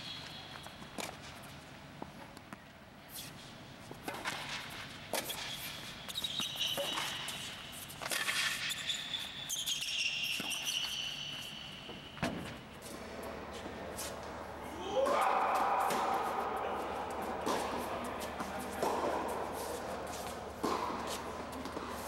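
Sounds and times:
shoes squeaking on court: 0:03.1 - 0:14.5
racket hitting ball: 0:14.9 - 0:22.0
ball bouncing: 0:20.6 - 0:22.0.

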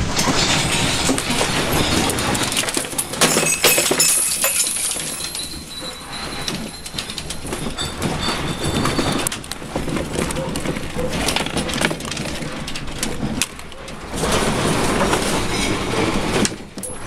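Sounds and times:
household objects rattling: 0:00.0 - 0:17.0.

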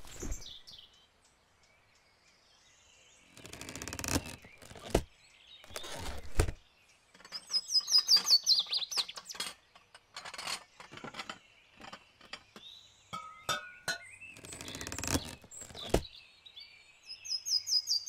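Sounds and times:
rustles: 0:00.0 - 0:00.8, 0:03.3 - 0:06.6, 0:14.4 - 0:16.1
small bird chirping: 0:00.0 - 0:02.4, 0:03.0 - 0:18.0.

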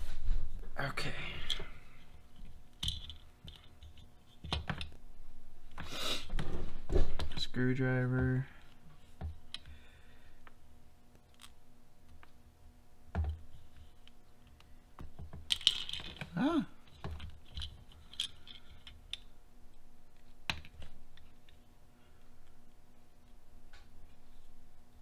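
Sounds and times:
plastic parts clicking and tapping: 0:02.7 - 0:05.0.

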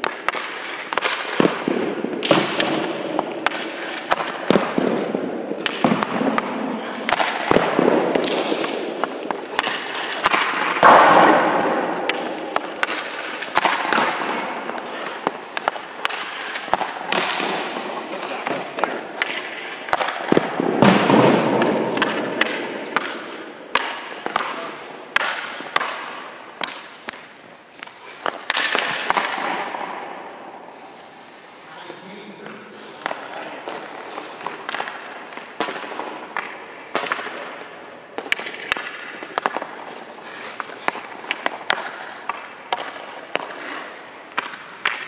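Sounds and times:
hockey pucks clacking: 0:00.0 - 0:45.0
skates scraping on ice: 0:00.0 - 0:45.0.

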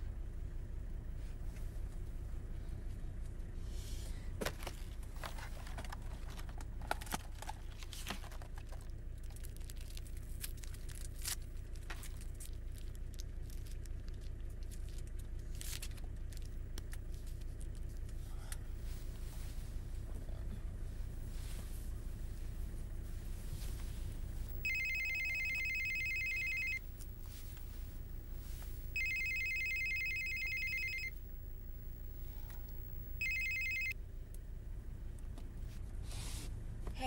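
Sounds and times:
plastic packaging clicks and crinkling: 0:04.5 - 0:18.0
car rumble: 0:08.8 - 0:25.6, 0:26.7 - 0:29.4, 0:30.3 - 0:37.0.

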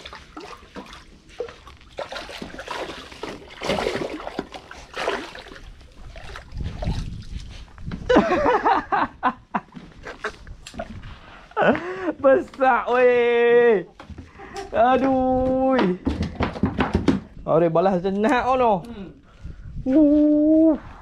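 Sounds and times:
fish thrashing and splashing: 0:00.0 - 0:07.4
sharp knocks: 0:15.8 - 0:17.4.

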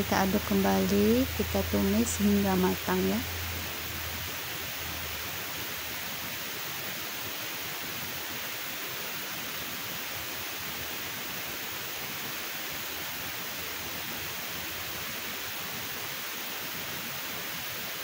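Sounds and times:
vegetables sizzling in a wok: 0:00.0 - 0:15.6.

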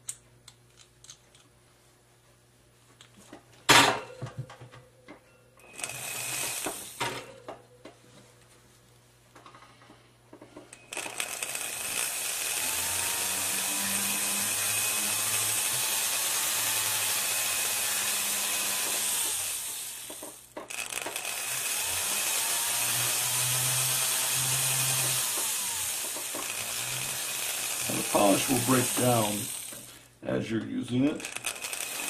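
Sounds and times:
rotary handpiece motor whirring: 0:05.7 - 0:07.1, 0:10.8 - 0:30.0, 0:31.2 - 0:32.0.

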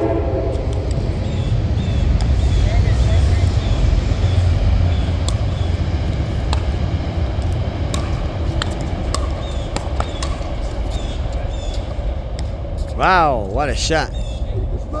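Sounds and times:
low rumble: 0:00.0 - 0:15.0
ball bouncing on hard court: 0:06.4 - 0:06.8, 0:07.4 - 0:11.0
paddles striking ball: 0:06.4 - 0:06.8, 0:07.8 - 0:10.7.

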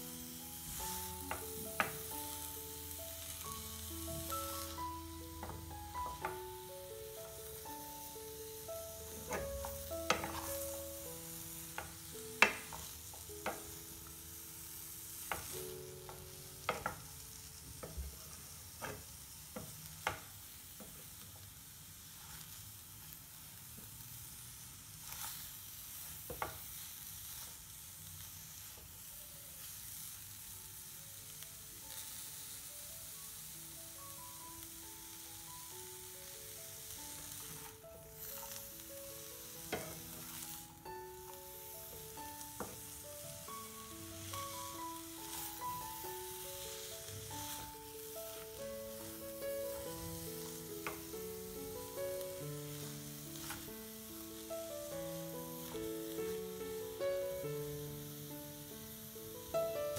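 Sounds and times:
cabbage sizzling in a pan: 0:00.0 - 0:59.9
wooden spatula knocking on pan: 0:09.3 - 0:10.6, 0:11.8 - 0:13.7, 0:16.1 - 0:17.1, 0:39.7 - 0:40.0.

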